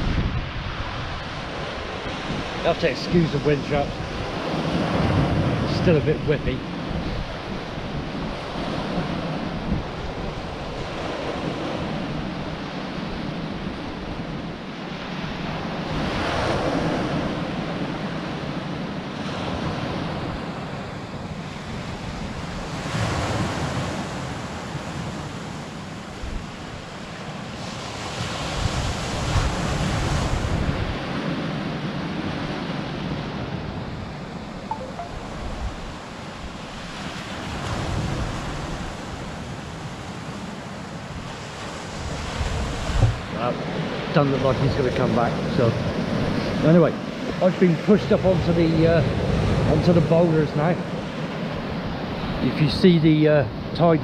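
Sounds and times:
wind buffeting microphone: 0.0 - 2.7, 3.3 - 14.7, 27.6 - 31.4, 35.2 - 47.5.

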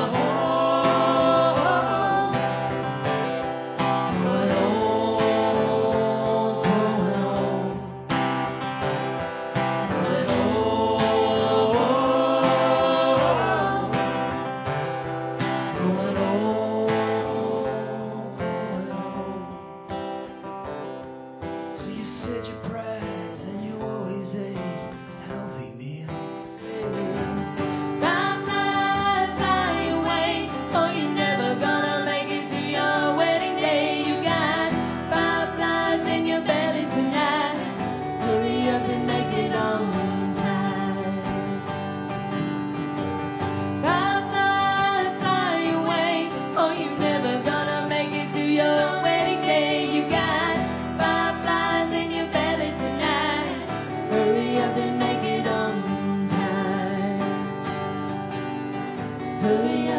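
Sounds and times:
women singing in harmony: 0.0 - 8.1, 9.8 - 14.7, 15.4 - 19.5, 26.9 - 41.8, 43.6 - 57.5, 59.3 - 59.9
acoustic guitar: 0.0 - 59.9.

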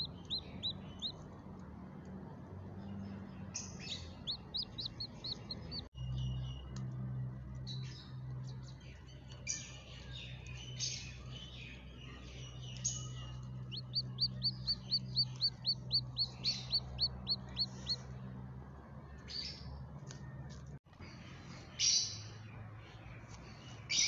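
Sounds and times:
chick peeping: 0.0 - 1.2, 3.8 - 5.9, 11.2 - 18.1.

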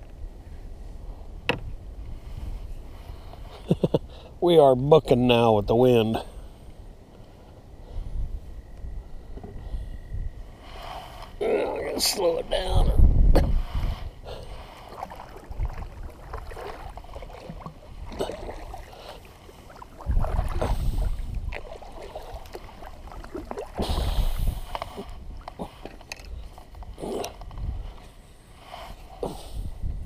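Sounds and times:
wind gusts on microphone: 0.0 - 28.1, 28.7 - 30.0
water slapping against kayak hull: 14.5 - 26.3.

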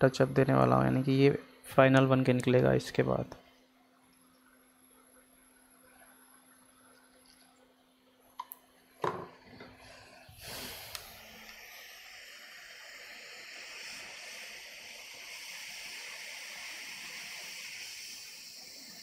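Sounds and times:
hot air station blowing air: 9.6 - 19.0.

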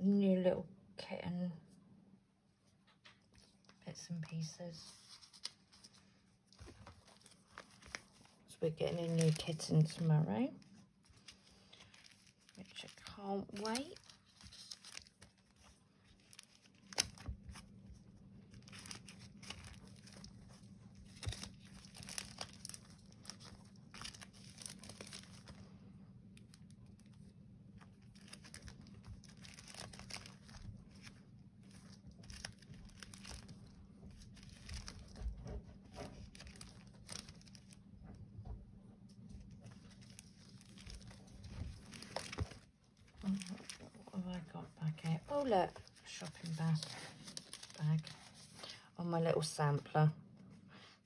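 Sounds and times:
sticker sheets rustling: 4.8 - 10.1, 11.0 - 37.8, 39.4 - 44.1, 45.0 - 48.7.

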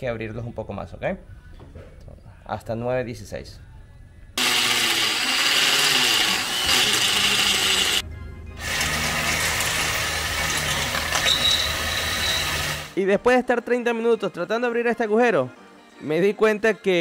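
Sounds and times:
cordless drill whining into steel: 4.4 - 8.0, 8.6 - 13.0.

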